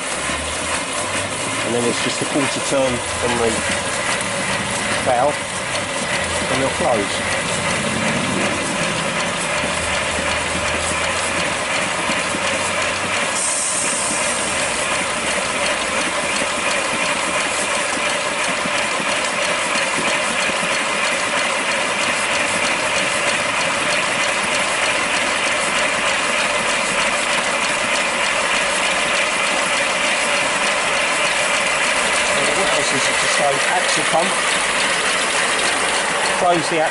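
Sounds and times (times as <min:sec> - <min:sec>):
steam hissing: 0:00.0 - 0:36.9
wheels clattering on rollers: 0:00.0 - 0:36.9.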